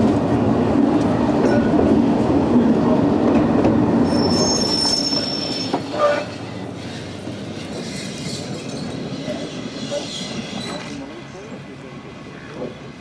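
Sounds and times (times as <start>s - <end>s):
tram rolling rumble: 0.0s - 13.0s
tram wheel squeal: 4.0s - 11.4s.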